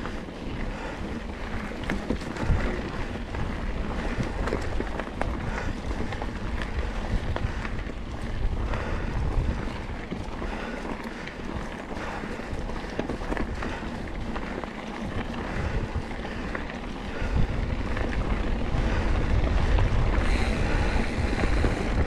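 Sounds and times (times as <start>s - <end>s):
bike rattling over rocks: 0.0s - 22.0s
bike tyres rumbling on dirt: 0.0s - 22.0s
wind buffeting microphone: 0.0s - 22.0s.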